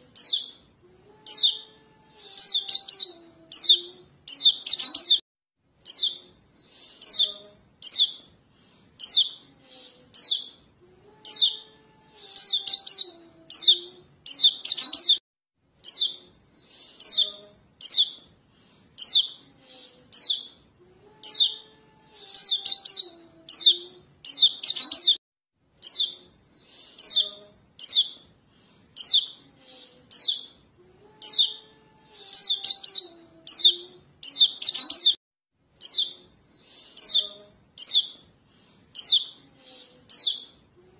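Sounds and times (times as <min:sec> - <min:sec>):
high bird chirps: 0:00.1 - 0:00.6, 0:01.3 - 0:05.2, 0:05.8 - 0:08.3, 0:09.0 - 0:10.6, 0:11.2 - 0:15.2, 0:15.8 - 0:18.3, 0:19.0 - 0:19.4, 0:20.1 - 0:20.6, 0:21.3 - 0:25.2, 0:25.8 - 0:28.2, 0:29.0 - 0:30.6, 0:31.2 - 0:35.2, 0:35.8 - 0:38.2, 0:38.9 - 0:39.4, 0:40.0 - 0:40.6.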